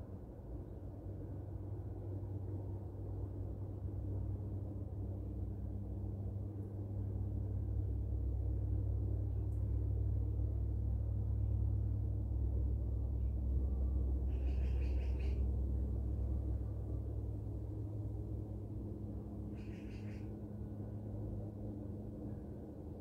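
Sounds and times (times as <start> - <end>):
low engine rumble with hum: 0.0 - 23.0.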